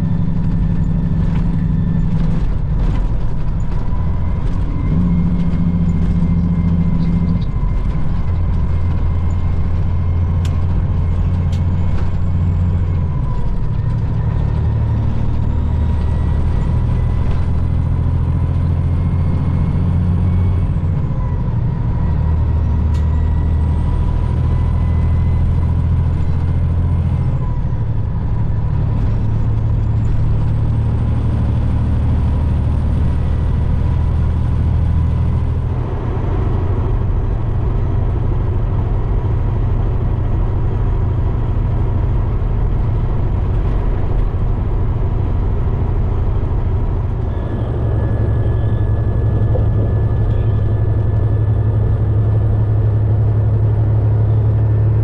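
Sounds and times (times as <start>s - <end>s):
truck engine and road drone: 0.0s - 55.0s
high whine: 45.3s - 55.0s.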